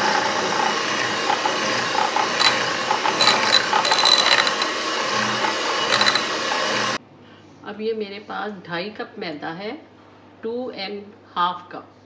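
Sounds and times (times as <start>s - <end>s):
electric hand mixer running: 0.0s - 7.0s
rattling clicks: 0.5s - 7.0s.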